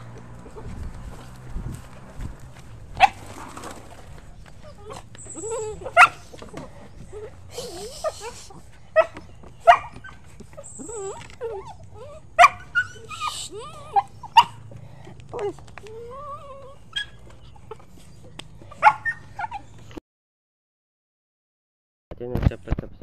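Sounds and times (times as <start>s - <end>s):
dog yelps: 3.0s - 3.2s, 4.6s - 14.7s, 15.3s - 19.8s
dogs whining: 4.3s - 20.0s.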